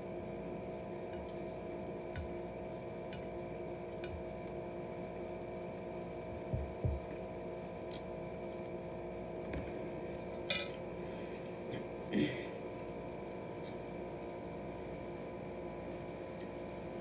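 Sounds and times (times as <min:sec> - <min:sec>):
steady electrical hum: 0:00.0 - 0:17.0
soft low thumps: 0:06.4 - 0:07.1.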